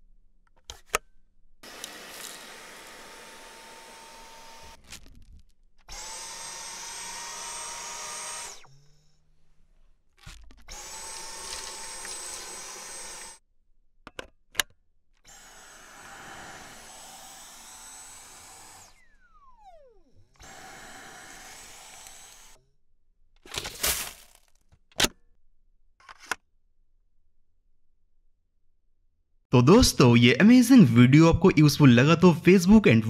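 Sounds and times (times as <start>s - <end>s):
stick vacuum running: 1.6s - 5.0s, 10.7s - 13.4s, 15.3s - 22.6s.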